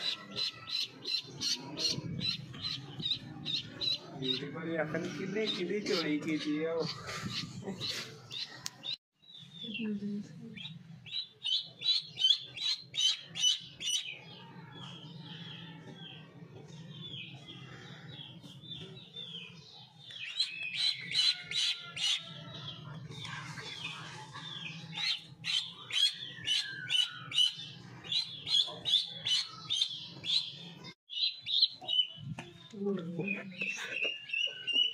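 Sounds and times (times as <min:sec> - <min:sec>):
duckling peeping: 0:10.6 - 0:14.1, 0:24.6 - 0:32.2.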